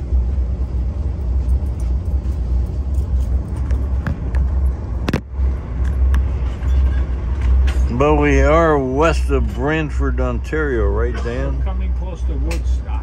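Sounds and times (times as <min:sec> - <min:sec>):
rail car rumble: 0:00.0 - 0:13.0.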